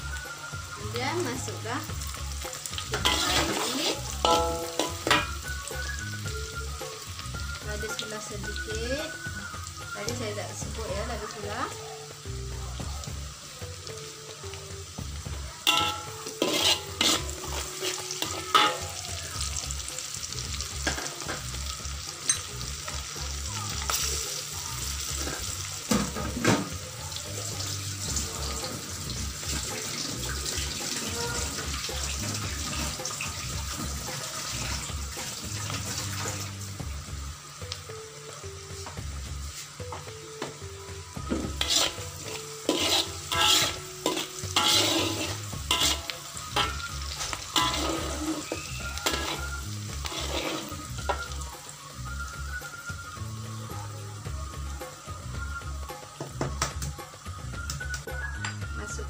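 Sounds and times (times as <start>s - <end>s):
oil sizzling in a wok: 0.0s - 59.0s
metal spatula scraping a wok: 2.0s - 6.0s, 15.6s - 19.0s, 41.3s - 51.4s.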